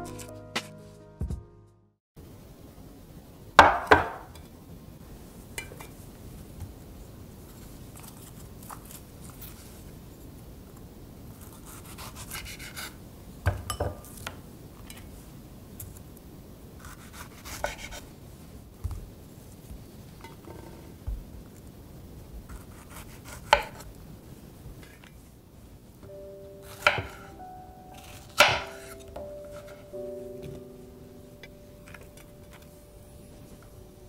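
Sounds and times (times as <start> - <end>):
knife tapping on wooden board: 26.8 - 27.2.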